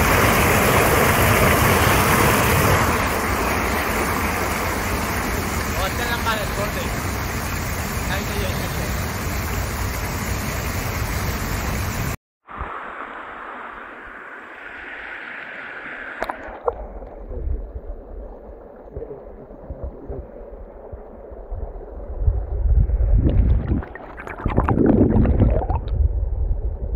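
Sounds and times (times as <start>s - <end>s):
stream running over stones: 0.0s - 11.8s.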